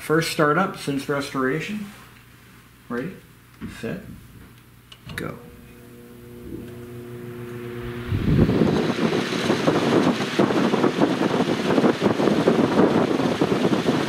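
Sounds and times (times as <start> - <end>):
fan motor hum: 0.2 - 14.0
air rush buffeting microphone: 5.4 - 14.0.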